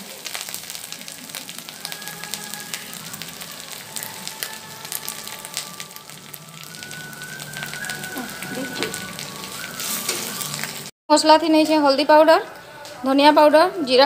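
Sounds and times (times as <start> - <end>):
spices sizzling in hot oil: 0.0 - 10.9.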